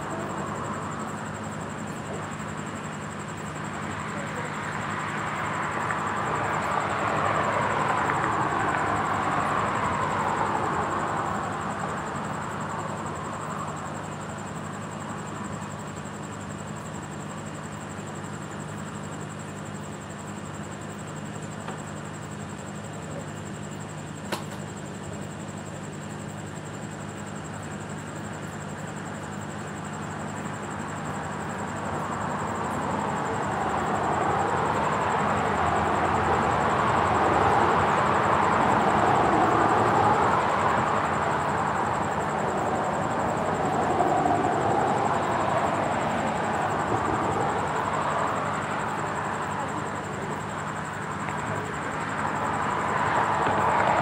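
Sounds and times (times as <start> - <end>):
cars passing: 2.2 - 14.1, 30.9 - 54.0.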